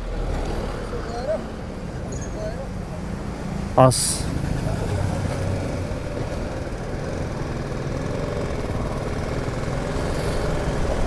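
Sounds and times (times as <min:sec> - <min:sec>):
motorcycle engine running: 0:04.4 - 0:11.0.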